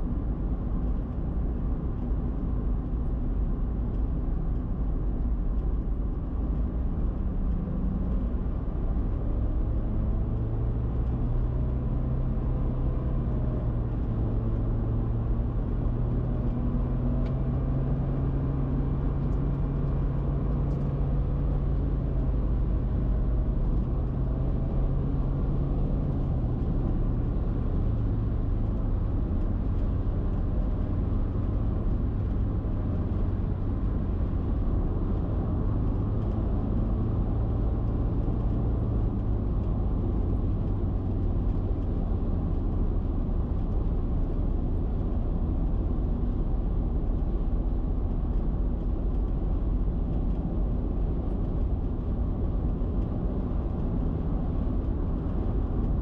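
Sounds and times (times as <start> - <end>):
car road and engine drone: 0.0 - 56.0.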